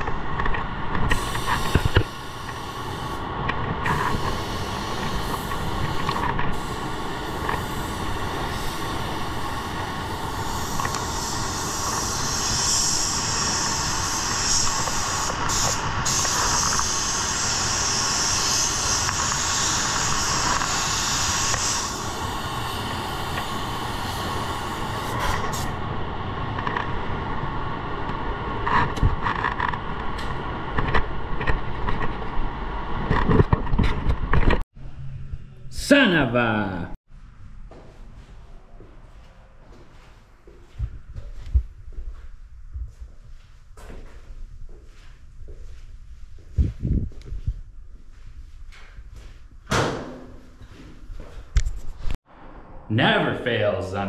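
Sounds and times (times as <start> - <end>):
spray booth airflow rushing: 1.0 - 25.8
spray gun air hiss: 1.1 - 3.3, 3.9 - 25.8.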